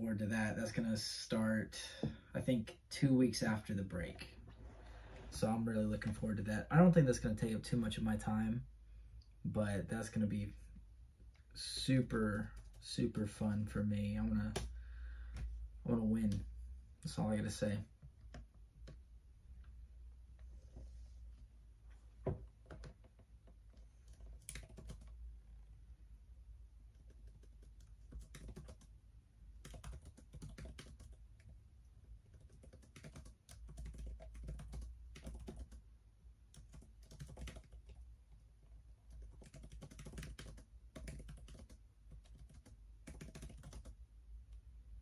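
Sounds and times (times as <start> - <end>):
laptop keyboard typing: 22.6 - 25.2, 26.9 - 28.9, 29.6 - 31.6, 32.2 - 35.8, 36.5 - 38.0, 39.1 - 44.0.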